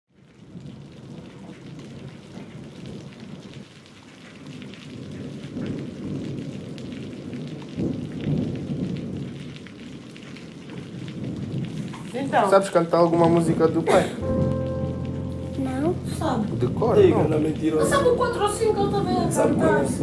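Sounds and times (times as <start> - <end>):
steady rain pattering: 0.1 - 20.0
rolling thunder: 4.6 - 20.0.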